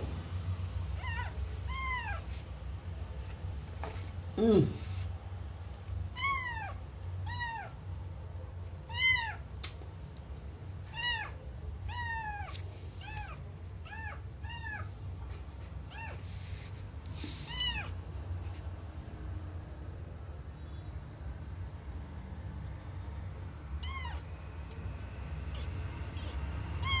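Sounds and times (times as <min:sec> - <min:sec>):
kitten meowing: 0:01.0 - 0:02.3, 0:06.1 - 0:07.8, 0:08.9 - 0:09.4, 0:10.9 - 0:15.0, 0:15.9 - 0:16.2, 0:17.4 - 0:18.0, 0:23.8 - 0:24.3, 0:25.4 - 0:27.0.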